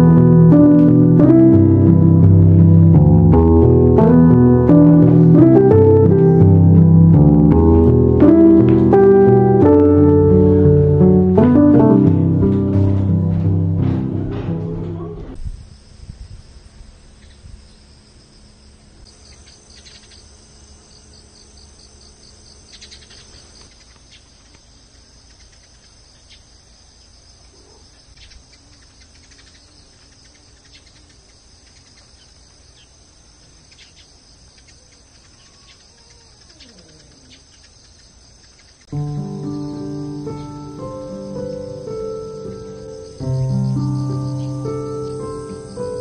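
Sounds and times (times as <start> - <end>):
music with pitched notes: 0.0 - 15.4, 38.9 - 46.0
crickets chirring: 15.3 - 46.0.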